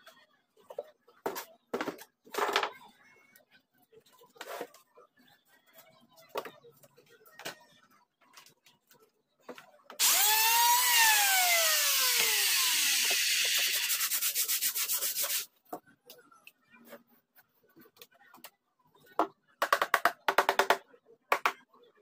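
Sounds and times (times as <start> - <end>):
power sander on wood: 10.0 - 14.1.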